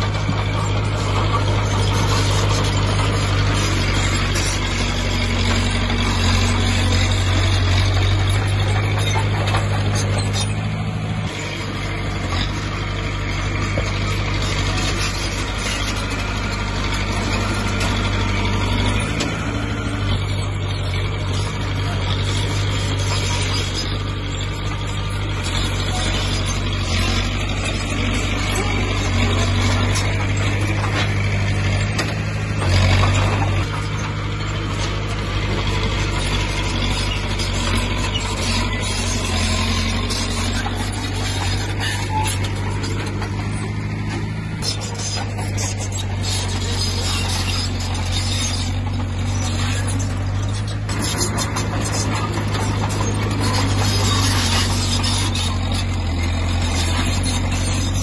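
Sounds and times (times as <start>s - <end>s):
heavy machinery diesel engine running: 0.0s - 58.0s.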